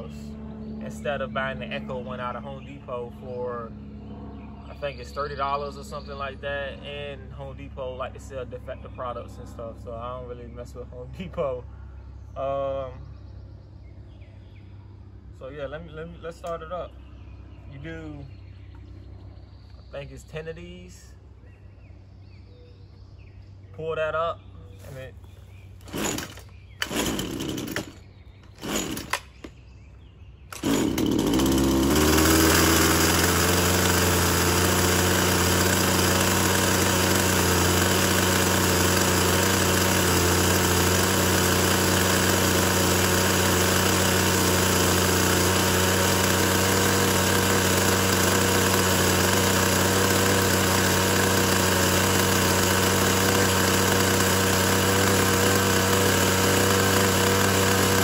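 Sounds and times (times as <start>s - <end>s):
string trimmer engine starting and idling: 25.8s - 29.6s, 30.5s - 58.0s.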